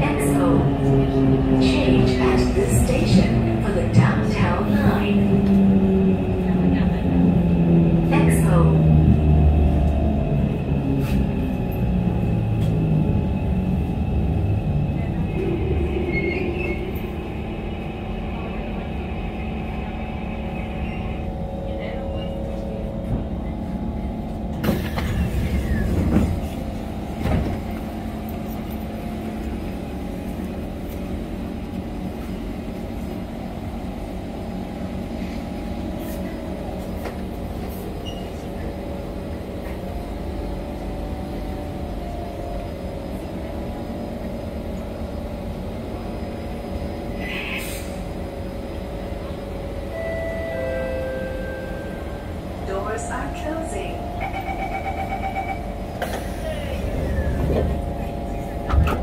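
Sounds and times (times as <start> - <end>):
metro train humming: 0.0 - 59.0
train doors opening: 8.2 - 13.4, 20.6 - 33.3, 35.2 - 45.0, 45.7 - 59.0.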